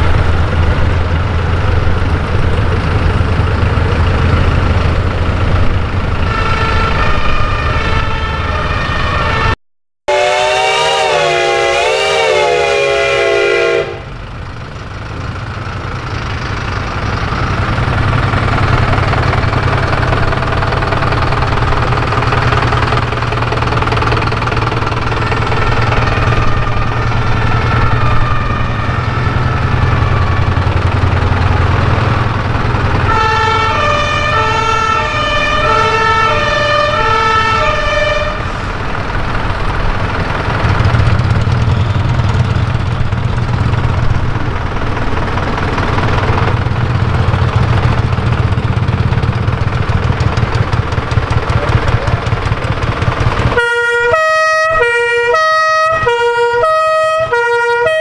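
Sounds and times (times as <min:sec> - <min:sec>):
diesel truck engines rumbling: 0:00.0 - 0:58.0
two-tone siren: 0:06.2 - 0:14.1, 0:25.1 - 0:31.4, 0:33.0 - 0:38.5, 0:53.6 - 0:58.0
wailing siren: 0:06.2 - 0:14.1, 0:25.0 - 0:31.6, 0:32.7 - 0:38.7, 0:53.5 - 0:58.0.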